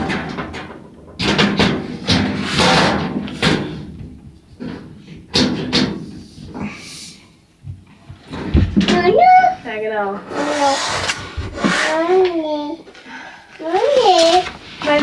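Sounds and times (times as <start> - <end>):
furniture parts knocking and banging: 0.0 - 6.7, 7.6 - 9.3.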